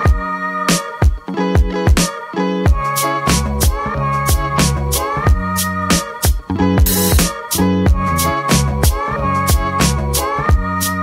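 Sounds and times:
steady drum beat: 2.7 - 10.7
bass line: 2.7 - 11.0.

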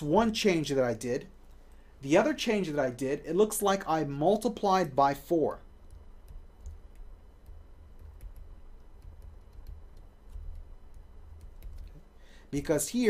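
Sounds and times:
low room hum: 0.0 - 13.0
stylus tapping on pen tablet: 5.8 - 12.0.

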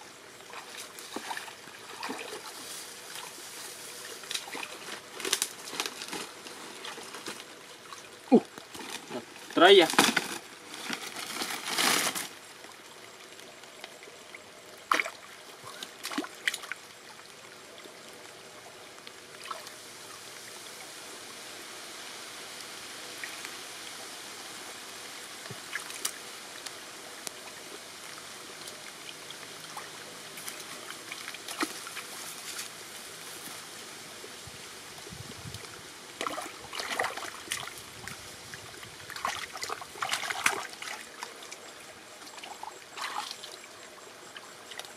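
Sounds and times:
stream water trickling: 0.0 - 44.9
hands splashing in water: 39.1 - 41.0.

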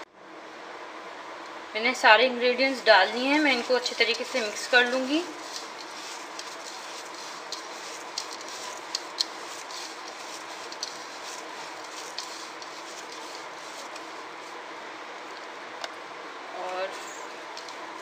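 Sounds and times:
steady hiss: 2.2 - 18.0
fingers squishing marinade: 3.6 - 14.2.

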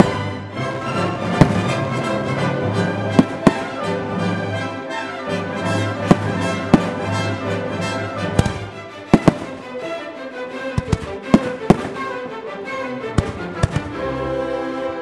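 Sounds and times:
music playing: 0.0 - 15.0
fireworks bursting: 1.3 - 2.0, 3.1 - 4.0, 6.0 - 7.4, 8.3 - 9.8, 10.8 - 12.2, 13.2 - 14.0.

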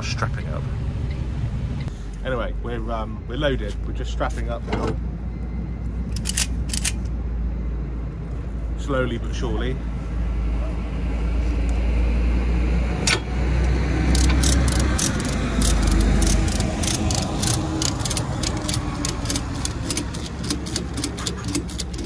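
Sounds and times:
lorry diesel engine rumbling: 0.0 - 22.0
ratchet strap clicking: 6.1 - 7.1, 14.1 - 22.0.

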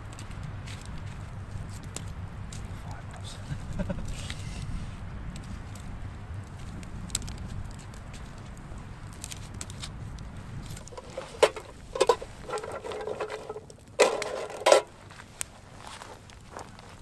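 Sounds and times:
campfire crackling: 0.0 - 17.0
metal pot clanking on wire grill: 10.8 - 15.0.

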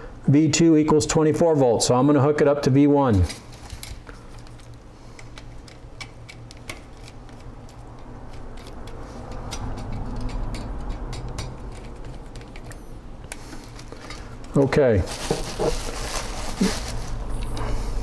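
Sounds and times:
screwdriver clicking and scraping: 3.2 - 13.9.

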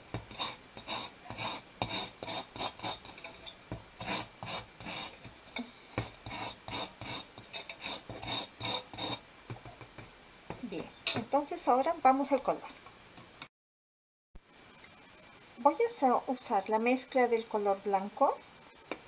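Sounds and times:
sanding block rasping on metal wires: 0.1 - 5.4, 6.0 - 9.2.

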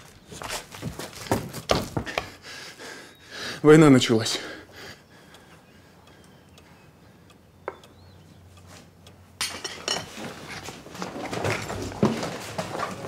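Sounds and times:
rustling and knocks: 9.4 - 13.0.

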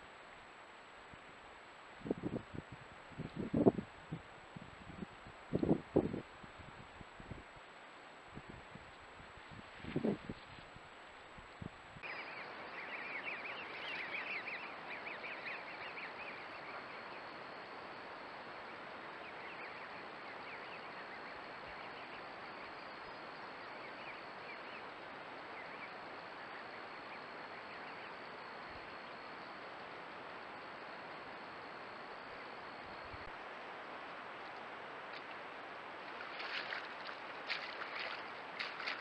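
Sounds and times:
microphone hiss: 0.0 - 39.0.

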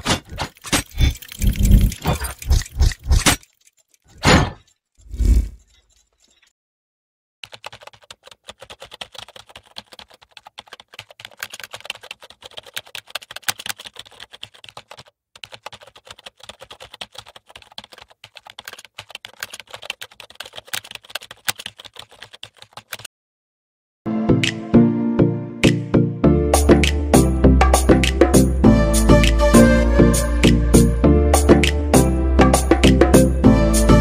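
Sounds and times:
keyboard typing clicks: 0.5 - 3.8, 7.4 - 23.1.

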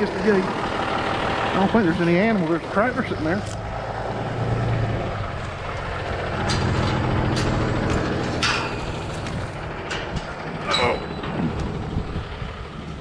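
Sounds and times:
diesel truck engine running: 0.0 - 13.0
sharp knocks or rattles: 5.7 - 12.1.

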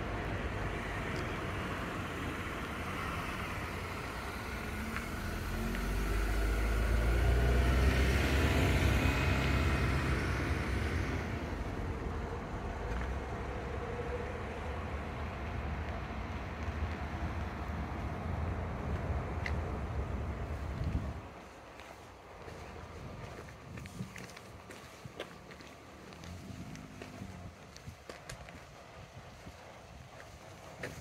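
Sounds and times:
distant traffic: 0.0 - 31.0
vehicle driving past: 0.5 - 21.2, 26.0 - 27.7.

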